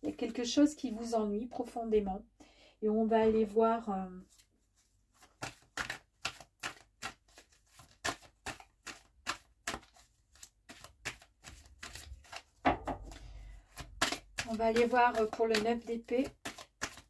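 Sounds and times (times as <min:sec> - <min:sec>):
cards being shuffled: 0:04.3 - 0:17.0.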